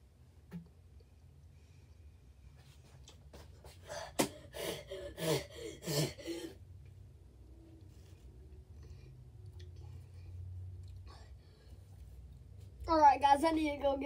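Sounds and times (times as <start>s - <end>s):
boy gasping and huffing: 3.6s - 6.6s.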